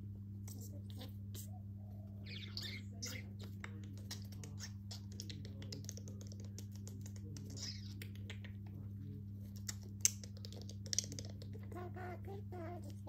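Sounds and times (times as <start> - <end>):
steady low hum: 0.0 - 13.0
bird beak tapping: 3.0 - 8.8, 9.6 - 11.7.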